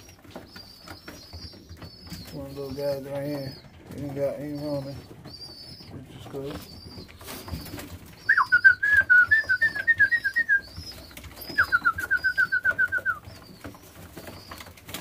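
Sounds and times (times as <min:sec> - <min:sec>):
bird trilling whistled notes: 0:08.2 - 0:13.2.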